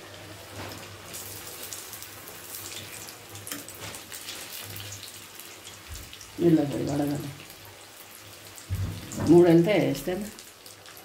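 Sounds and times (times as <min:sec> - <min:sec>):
fish deep-frying in oil: 0:00.0 - 0:11.0
oil crackles and pops: 0:00.5 - 0:06.4.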